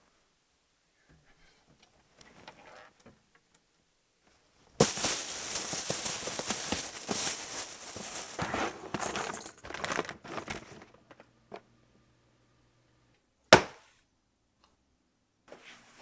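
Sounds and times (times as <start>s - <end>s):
plastic bags crinkling: 4.8s - 11.1s.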